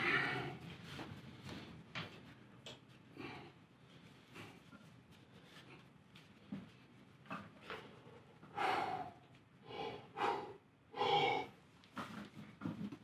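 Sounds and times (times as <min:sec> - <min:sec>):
short forceful breaths: 0:08.5 - 0:11.6.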